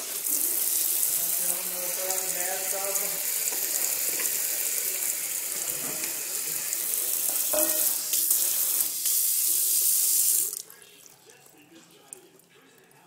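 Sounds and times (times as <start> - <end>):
tap running into metal sink: 7.2 - 8.4.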